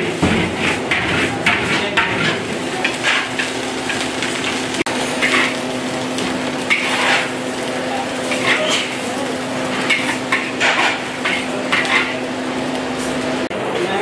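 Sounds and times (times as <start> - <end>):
metal spatula scraping steel wok: 0.1 - 4.0, 6.7 - 7.4, 8.2 - 9.1, 9.7 - 12.2.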